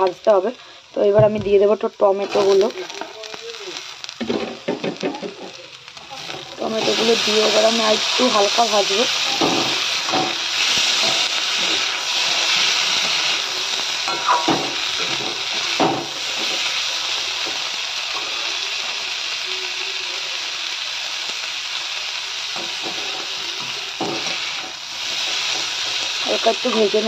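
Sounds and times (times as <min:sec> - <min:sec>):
vegetables sizzling in oil: 0:00.0 - 0:27.0
spatula scraping and knocking pan: 0:09.2 - 0:13.2.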